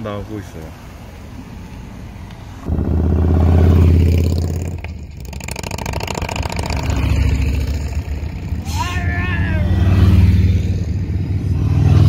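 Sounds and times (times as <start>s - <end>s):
motorcycles passing by: 1.0s - 12.0s.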